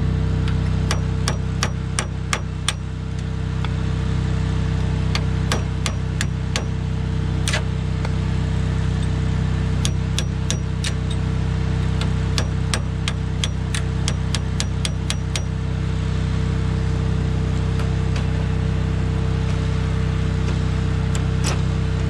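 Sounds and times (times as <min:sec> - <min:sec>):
engine hum: 0:00.0 - 0:22.0
hammer striking steel punch: 0:00.9 - 0:02.9, 0:05.1 - 0:06.8, 0:09.8 - 0:11.1, 0:12.0 - 0:15.6.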